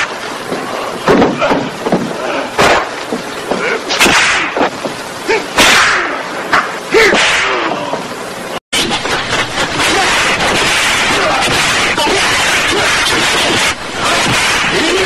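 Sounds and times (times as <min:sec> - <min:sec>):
punch and kick hits: 0:02.6 - 0:02.9, 0:03.9 - 0:04.7, 0:05.6 - 0:06.1, 0:07.1 - 0:07.6, 0:09.8 - 0:15.0.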